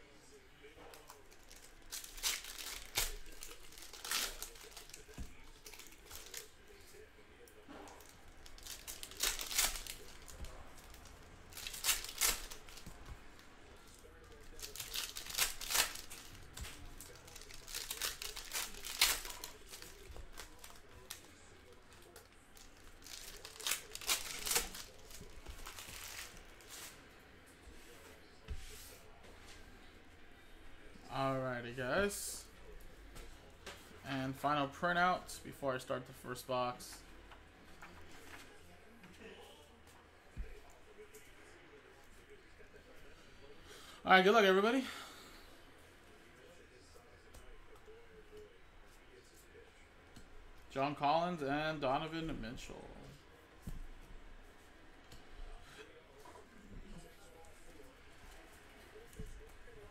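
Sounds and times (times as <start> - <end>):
packaging crinkling and tearing: 1.0 - 6.5, 8.0 - 13.0, 14.0 - 26.4.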